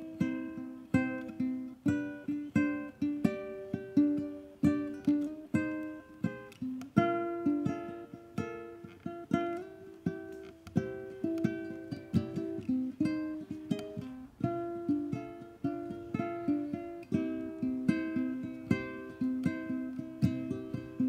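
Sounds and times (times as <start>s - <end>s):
ukulele playing: 0.0s - 21.0s.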